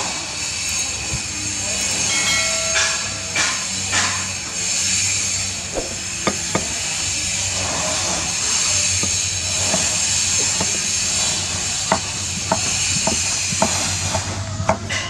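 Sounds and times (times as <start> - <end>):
steady high hiss: 0.4 - 11.8.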